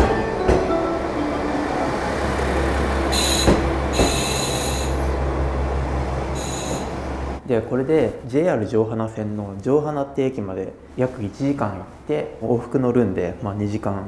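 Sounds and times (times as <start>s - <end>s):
diesel railcar engine rumbling: 0.0s - 7.4s
brakes squealing: 1.5s - 7.4s.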